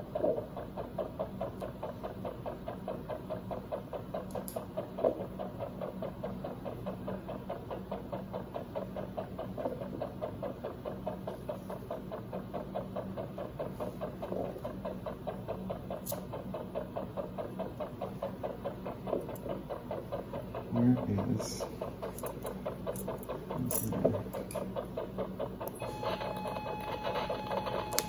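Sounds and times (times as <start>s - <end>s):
rapid heart monitor pulsing: 0.0s - 28.0s
steady low hum: 0.0s - 28.0s.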